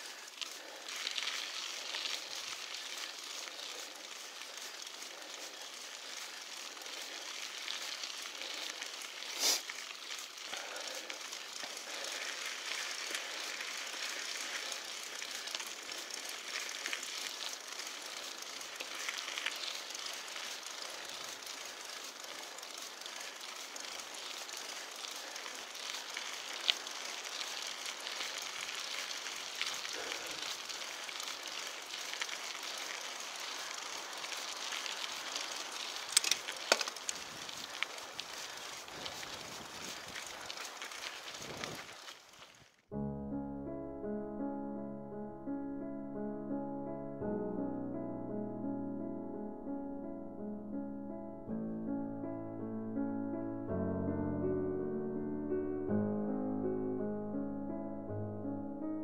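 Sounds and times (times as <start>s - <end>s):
bike tyres crunching on gravel: 0.0s - 42.9s.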